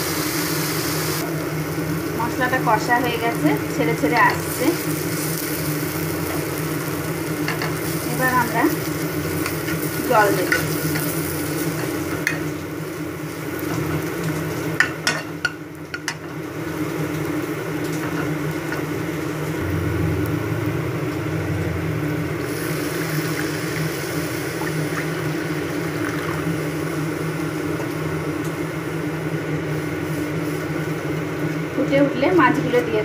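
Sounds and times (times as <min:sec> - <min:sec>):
paste frying in oil: 0:00.0 - 0:21.3, 0:22.3 - 0:32.6
steady low hum: 0:14.7 - 0:33.0.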